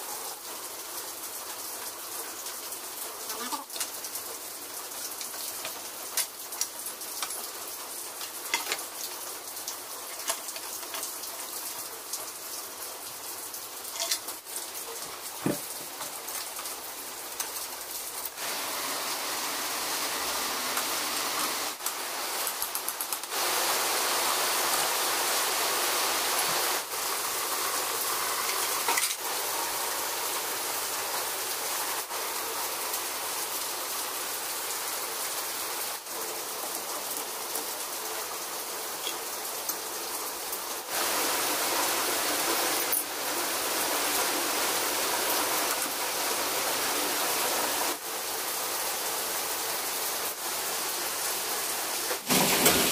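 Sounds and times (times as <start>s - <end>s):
hissing spray: 18.2s - 32.2s.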